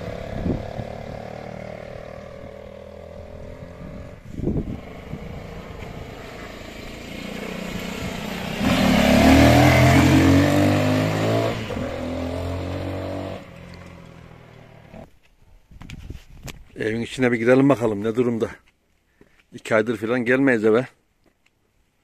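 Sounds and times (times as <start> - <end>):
dirt bike engine passing: 0.0 - 15.0.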